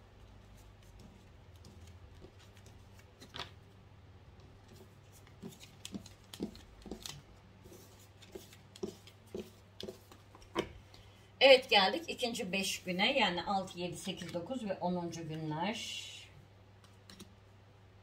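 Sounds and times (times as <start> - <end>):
cards tapping and sliding: 4.6 - 7.2.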